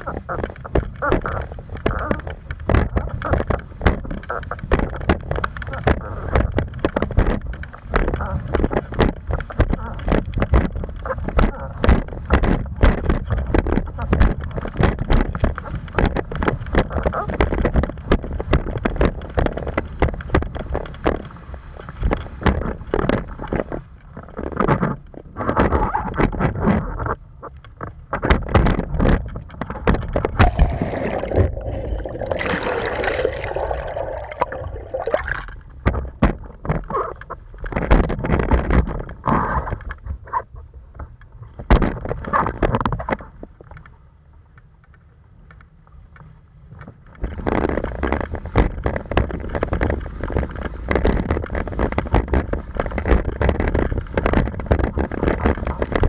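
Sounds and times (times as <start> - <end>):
water rushing and slapping board: 0.0 - 27.2, 27.8 - 39.9
wind buffeting microphone: 0.0 - 43.6, 46.8 - 56.0
water splashing on camera: 29.9 - 36.5.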